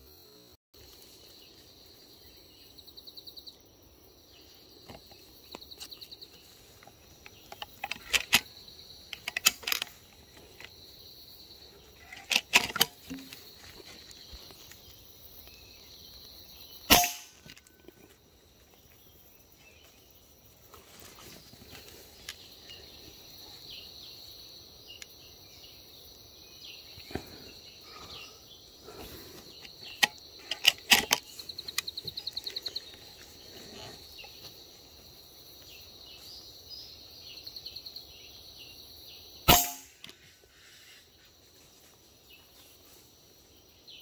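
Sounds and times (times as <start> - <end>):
insects trilling: 0.0 - 44.0
air rifle shot: 16.9 - 17.4, 39.5 - 40.0
sharp clicks and knocks: 29.9 - 31.9.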